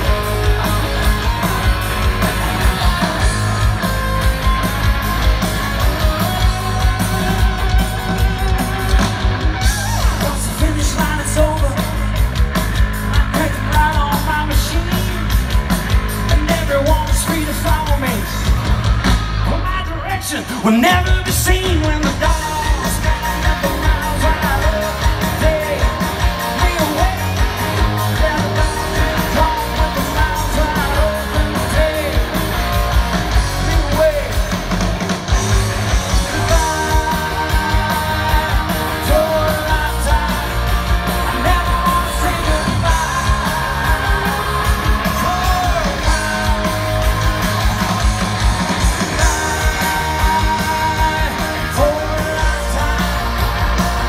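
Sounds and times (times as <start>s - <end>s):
live rock band playing: 0.0s - 54.0s
person singing: 20.6s - 34.4s, 35.4s - 48.4s, 49.0s - 54.0s.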